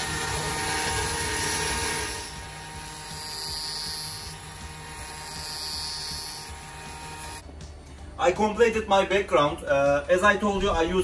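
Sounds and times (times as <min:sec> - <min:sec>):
cutting machine whirring: 0:00.0 - 0:07.4.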